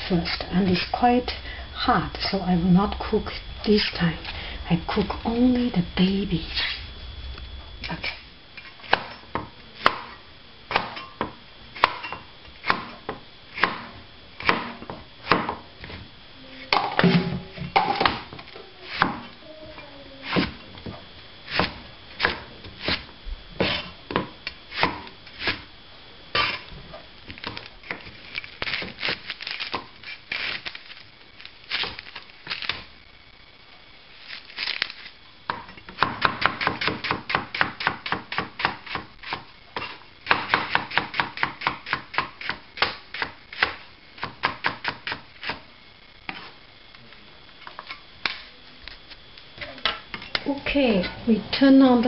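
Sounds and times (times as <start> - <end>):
knife chopping vegetables: 10.7 - 16.0, 18.9 - 19.2, 35.5 - 45.6.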